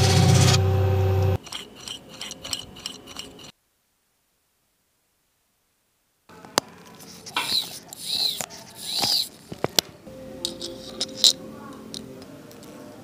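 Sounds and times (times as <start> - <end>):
metal tweezers clinking: 10.4 - 12.2.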